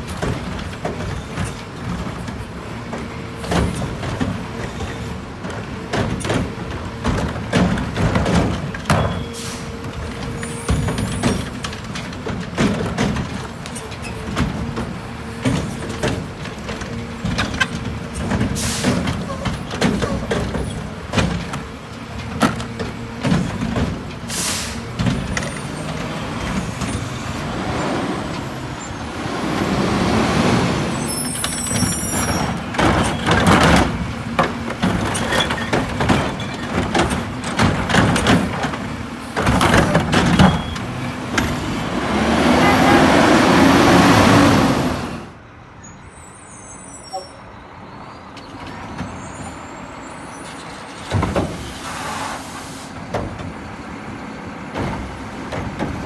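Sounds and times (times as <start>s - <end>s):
garbage truck engine revving: 17.9s - 45.4s.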